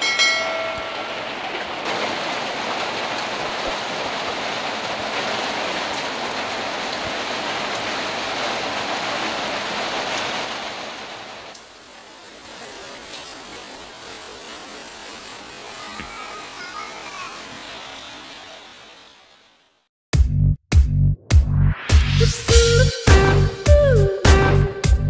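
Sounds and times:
rain splashing into standing water: 0.0s - 19.9s.

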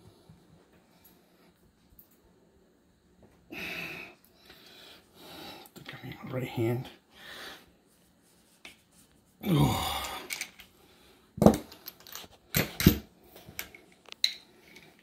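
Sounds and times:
metal tools clacking and clinking: 11.5s - 13.0s.

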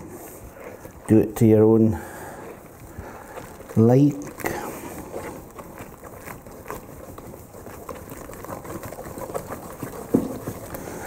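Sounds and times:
whisk slapping and tapping a bowl: 5.8s - 11.0s.

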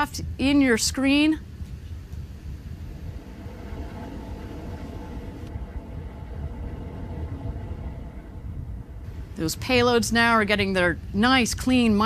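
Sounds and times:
faint hum: 0.0s - 12.0s
low rumble: 1.4s - 11.2s.

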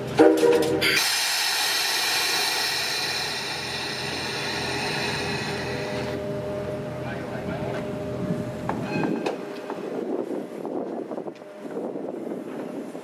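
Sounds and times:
steam locomotive whistle blast: 0.2s - 6.2s
steam locomotive hissing: 0.7s - 7.0s.

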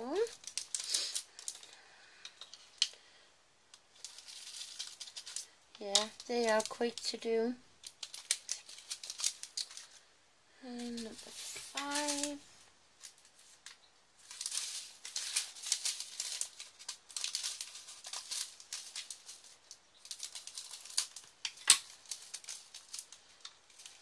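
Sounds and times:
plastic bag crinkling: 0.0s - 3.0s, 3.8s - 10.1s, 10.7s - 24.0s
rhinestones rattling: 10.8s - 12.5s.

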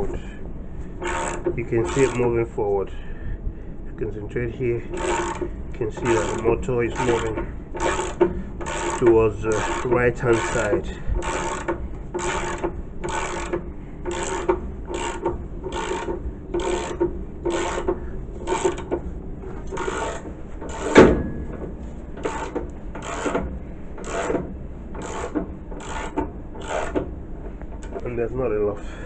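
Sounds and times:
ratchet wrench rasping: 1.0s - 2.4s, 4.9s - 18.9s, 19.7s - 21.0s, 22.2s - 23.4s, 24.0s - 24.4s, 25.0s - 27.0s.

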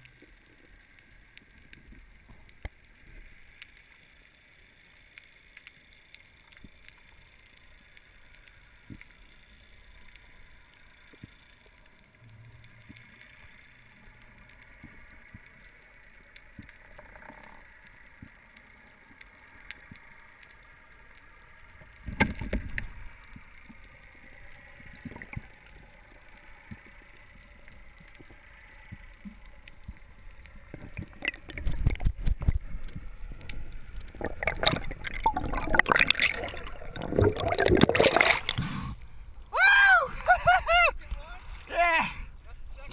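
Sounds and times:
small underwater clicks: 0.0s - 39.6s
underwater hiss: 32.6s - 39.2s
speared fish thrashing: 34.2s - 38.6s.

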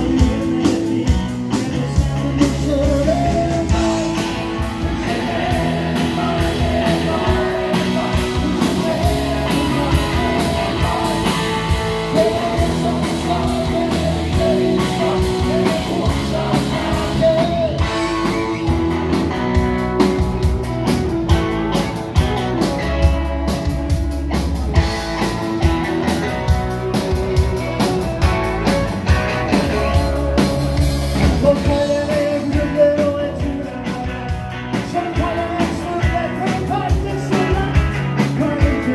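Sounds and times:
man singing lead vocal: 0.0s - 19.6s, 29.0s - 38.9s
bass guitar: 0.0s - 38.9s
drums: 0.0s - 38.9s
electric guitars: 0.0s - 38.9s.

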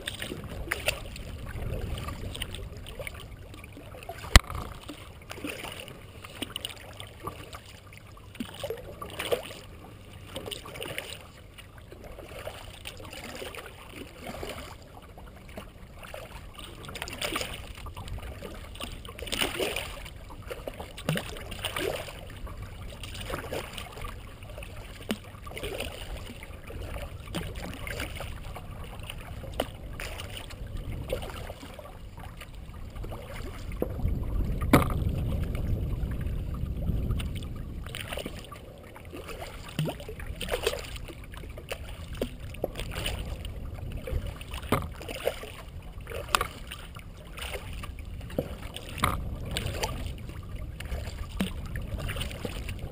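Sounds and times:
paddle splashing and dripping: 0.0s - 52.9s
water moving along hull: 0.0s - 52.9s
low rumble: 26.2s - 52.9s.

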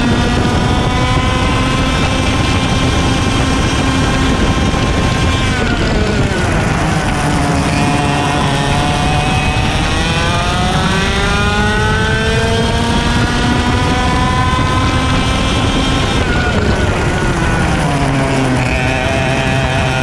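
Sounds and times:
kart engine at full throttle: 0.0s - 20.0s.

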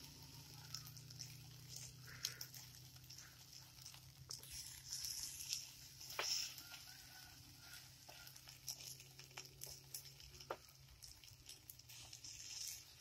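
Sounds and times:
omelette frying: 0.0s - 13.0s
plastic paddle scraping a frying pan: 4.4s - 6.7s.

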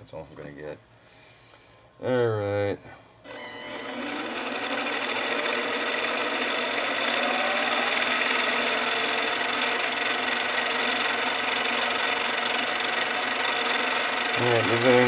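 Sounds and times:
lathe motor whirring: 3.3s - 15.0s.

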